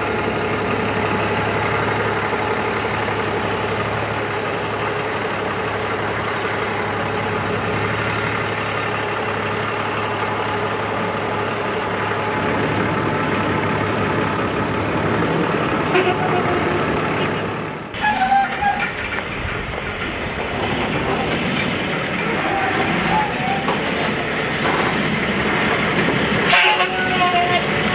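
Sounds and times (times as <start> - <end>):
diesel truck engine running: 0.0 - 27.9.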